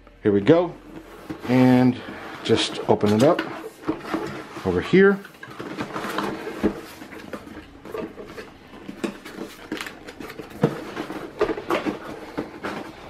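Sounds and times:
cardboard box scraping and rustling: 0.8 - 7.5.

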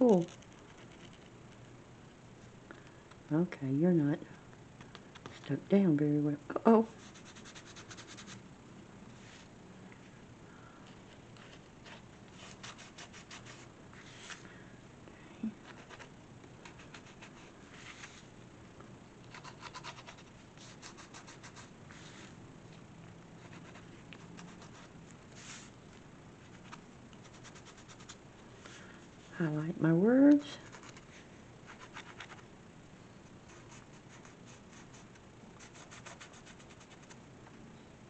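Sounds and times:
marker scratching on paper: 7.0 - 8.4.

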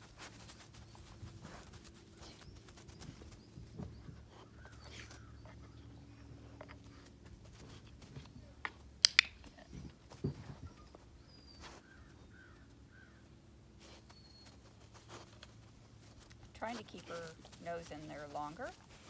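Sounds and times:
sharp clicks: 9.0 - 9.5.

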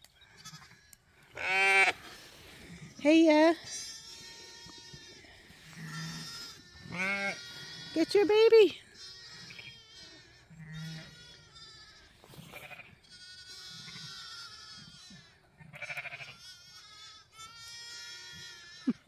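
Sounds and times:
sheep and lambs bleating: 0.2 - 19.0.

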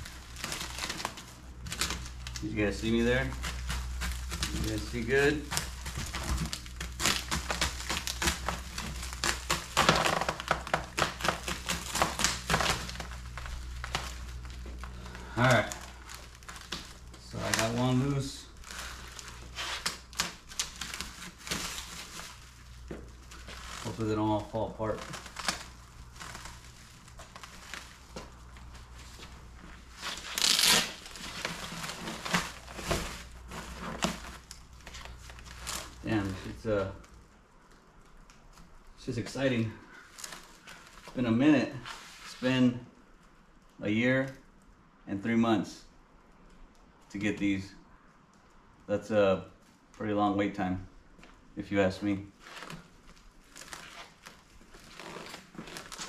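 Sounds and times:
cardboard packaging torn open: 0.0 - 39.0, 40.0 - 41.2, 52.4 - 56.0
plastic wrap crinkling: 0.0 - 44.9, 52.3 - 56.0
steady low hum: 0.0 - 48.0.

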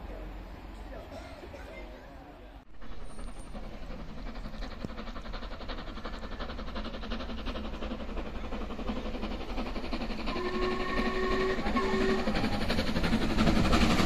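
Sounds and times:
steam locomotive running: 0.0 - 14.0
steam whistle blowing: 10.3 - 12.5.

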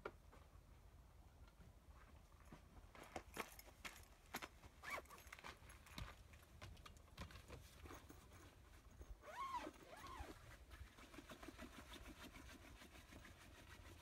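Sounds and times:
tent fabric rustling: 9.2 - 12.0.

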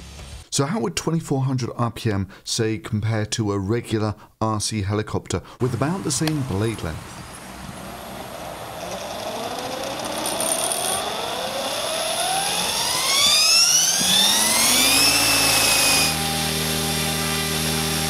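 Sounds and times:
model helicopter rotor whine: 7.8 - 18.0.

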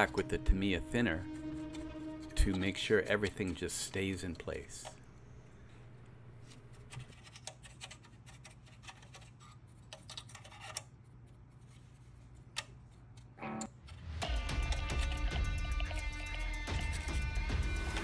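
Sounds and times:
paintbrush scratching and tapping plastic: 1.5 - 4.5, 6.7 - 13.3, 14.7 - 17.1.

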